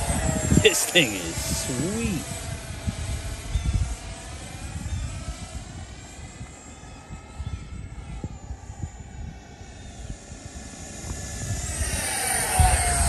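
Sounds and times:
electric ducted fan whining: 0.0s - 13.0s.

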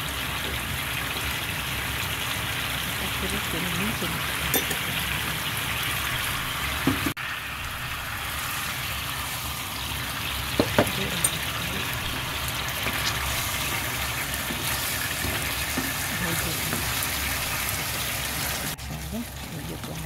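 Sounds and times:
sauce bubbling and sizzling: 0.0s - 20.0s.

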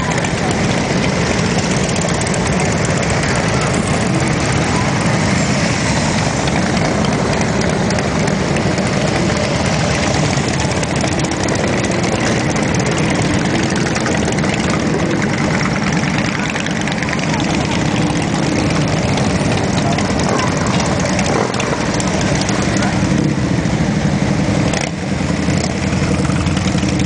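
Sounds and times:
motorcycle engines rumbling: 0.0s - 27.0s.

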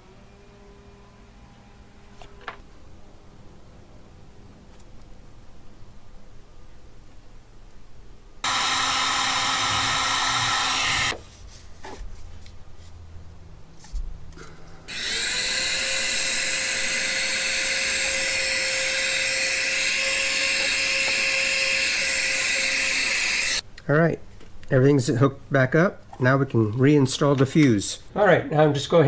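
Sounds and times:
heat gun blowing: 8.4s - 11.2s, 14.9s - 23.6s.

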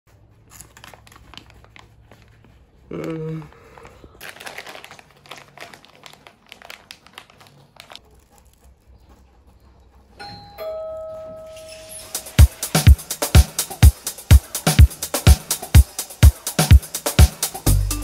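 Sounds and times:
rolling paper crinkling: 0.1s - 9.2s
two-tone doorbell chime: 10.2s - 12.1s
loud music beat: 12.1s - 18.0s.

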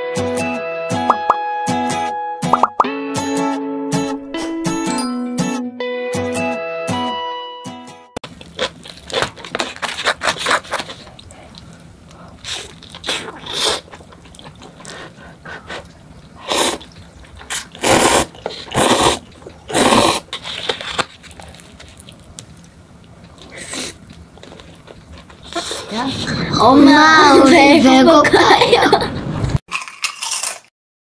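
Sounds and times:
wet chewing of pizza: 8.2s - 25.9s
slurping noodles: 8.4s - 21.8s.

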